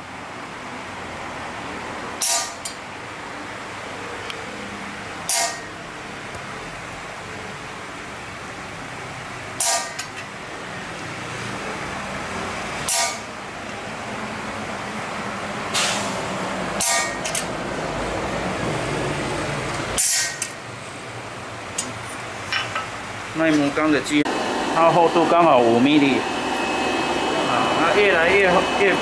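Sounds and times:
steady mechanical hum: 0.0 - 29.0
hammer striking steel punch: 2.2 - 2.7, 5.3 - 5.8, 9.6 - 10.1, 12.9 - 13.3, 16.8 - 17.4, 20.0 - 20.6.

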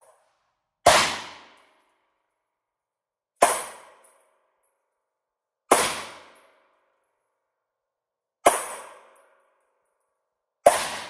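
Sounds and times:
rifle shots echoing indoors: 10.6 - 11.0.

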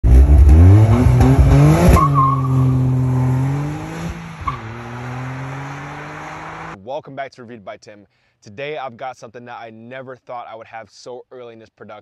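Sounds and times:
car engine revving: 0.0 - 6.8.

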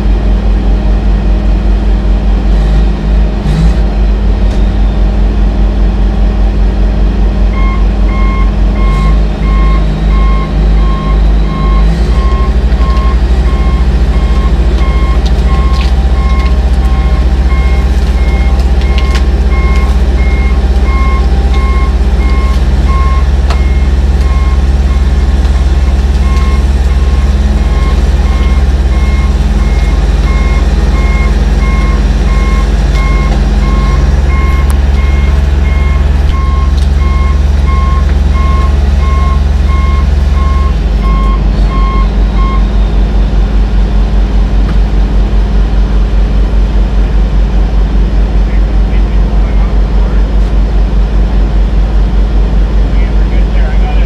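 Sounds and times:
bulldozer diesel engine running: 0.0 - 54.0
backup alarm beeping: 7.5 - 43.2.

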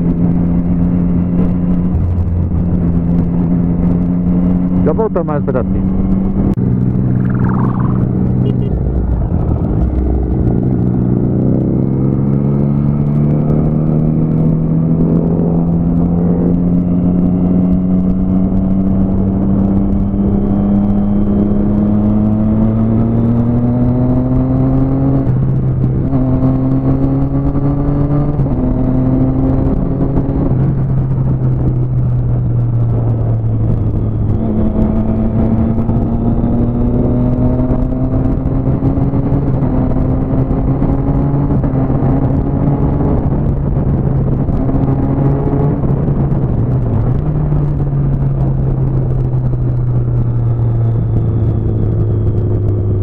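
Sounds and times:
motorcycle engine at speed: 0.0 - 53.0
wind and road rush: 0.0 - 53.0.

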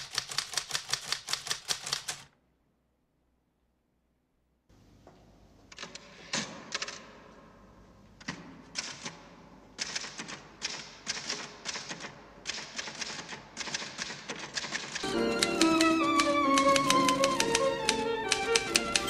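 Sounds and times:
typewriter keys clacking: 0.0 - 2.3, 9.8 - 19.0.

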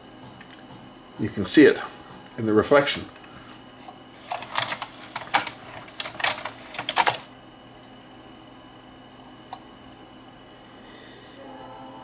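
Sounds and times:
cd changer motor whining: 0.0 - 8.0
gear and lever clicks: 4.2 - 7.3.

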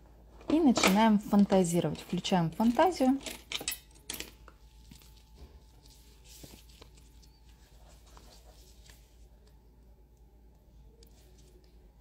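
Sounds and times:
sticker sheet rustling: 4.8 - 9.2.

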